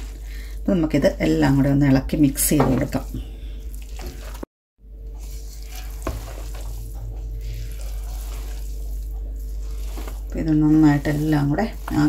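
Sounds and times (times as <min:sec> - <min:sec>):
light sizzle: 0:02.9 - 0:12.0
spatula scraping rice in pot: 0:05.2 - 0:12.0.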